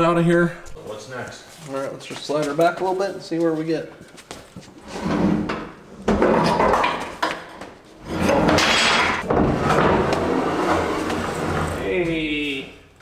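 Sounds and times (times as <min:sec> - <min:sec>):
metal clunks and scraping: 0:04.8 - 0:11.8.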